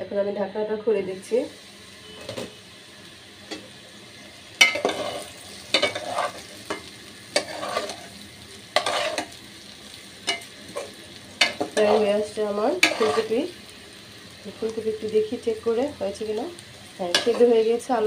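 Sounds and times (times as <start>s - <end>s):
vegetables sizzling: 0.1s - 18.0s
metal spatula scraping a pan: 4.6s - 9.4s, 10.3s - 13.5s, 17.1s - 17.7s.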